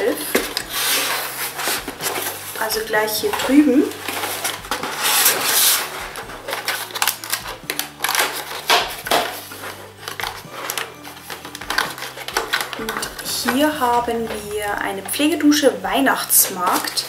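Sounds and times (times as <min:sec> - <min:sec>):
cardboard rustling scrape: 0:00.0 - 0:15.4.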